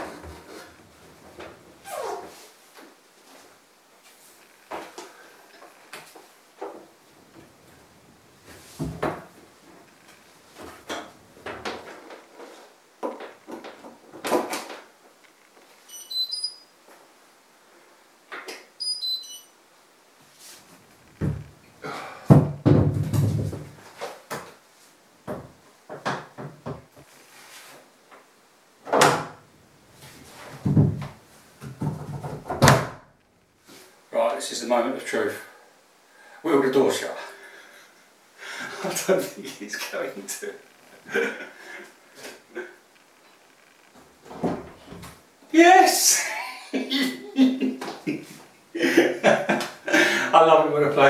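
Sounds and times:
short high chirps: 15.9s - 16.7s, 18.8s - 19.5s
washing machine knocks and rattles: 22.3s - 23.8s, 30.6s - 31.1s.

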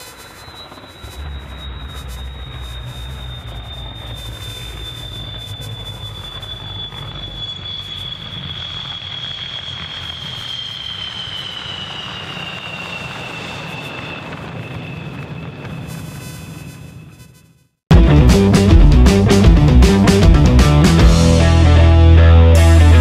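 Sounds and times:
jet engines whining: 0.0s - 17.2s, 17.9s - 23.0s
low rumble: 1.0s - 9.8s, 17.9s - 23.0s.

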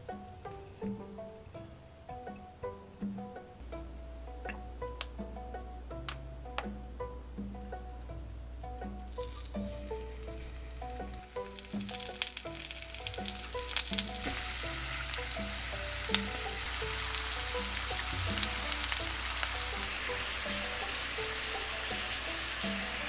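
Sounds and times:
food sizzling in hot oil: 9.1s - 23.0s
oil crackles: 9.2s - 23.0s.

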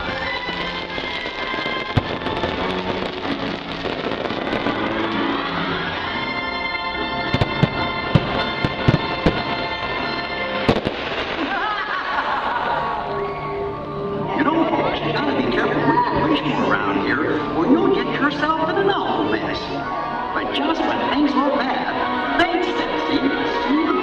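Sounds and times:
firework bangs: 0.0s - 6.1s, 7.2s - 12.4s
loud show music: 0.0s - 11.4s.

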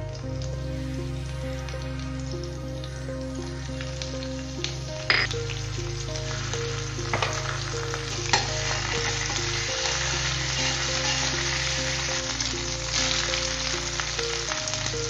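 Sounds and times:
hot oil sizzling and spitting: 3.6s - 15.0s.

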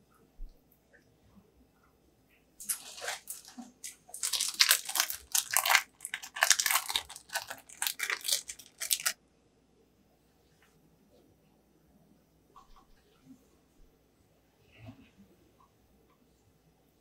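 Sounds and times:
plastic wrapper crinkling: 2.6s - 9.2s.

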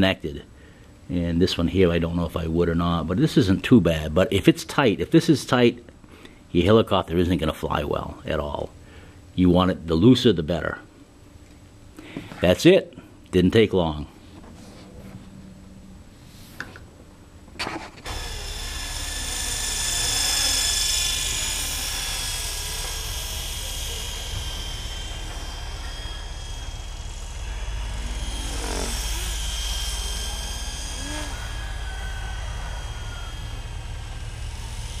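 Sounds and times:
model helicopter high whine: 18.0s - 35.0s.

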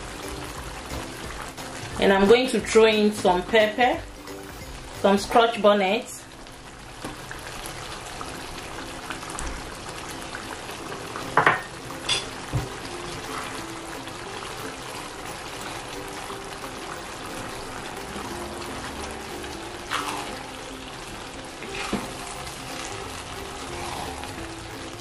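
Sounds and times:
sauce bubbling: 0.0s - 2.2s, 6.3s - 25.0s
wooden spoon stirring sauce: 21.6s - 25.0s.

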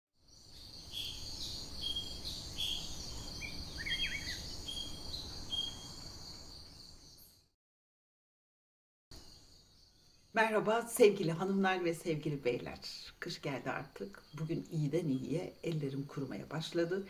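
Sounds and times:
insect chorus: 0.2s - 7.5s, 9.1s - 17.0s
birds chirping: 0.3s - 7.4s, 9.2s - 17.0s
bird warbling: 2.6s - 5.8s.

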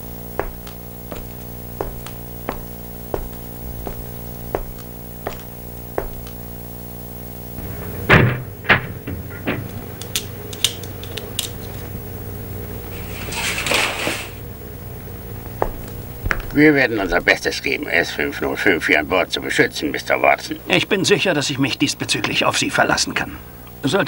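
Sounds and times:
footsteps on hard floor: 0.0s - 6.6s, 15.5s - 16.6s
steady low hum: 0.0s - 22.1s
knocks on door: 0.4s - 6.3s, 7.6s - 9.9s
door handle and latch clatter: 7.6s - 11.6s
scraping rustle: 12.9s - 14.4s.

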